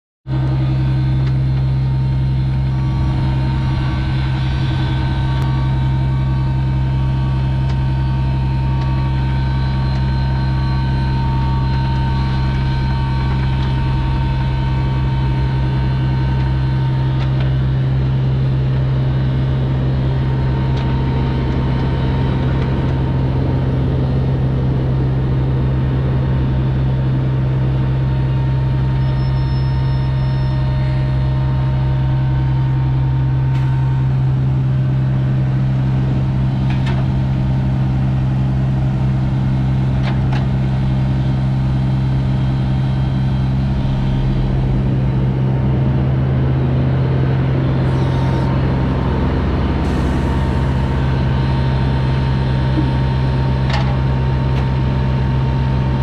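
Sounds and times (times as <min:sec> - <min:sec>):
mini excavator diesel engine running: 0:00.3 - 0:56.0
faint beep: 0:29.0 - 0:30.6.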